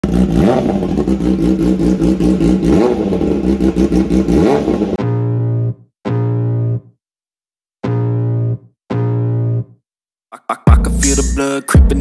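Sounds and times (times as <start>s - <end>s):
motorcycle engine revving: 0.0s - 5.2s
held electronic music notes: 10.6s - 12.0s.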